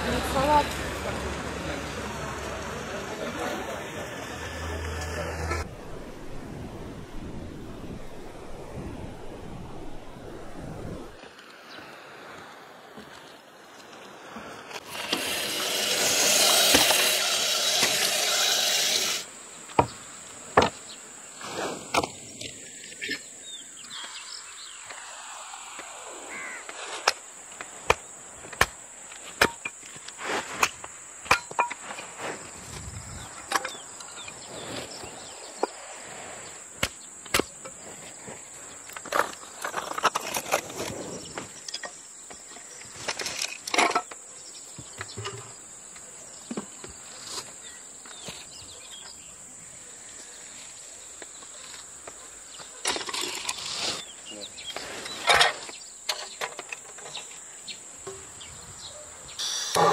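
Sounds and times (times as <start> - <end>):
high insect drone: 14.4 - 59.9
split wood clattering: 27.0 - 32.1.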